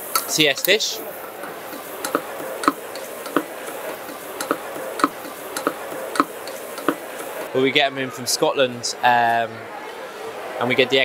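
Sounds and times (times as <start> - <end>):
wooden spoon knocking on saucepan: 1.7 - 7.4.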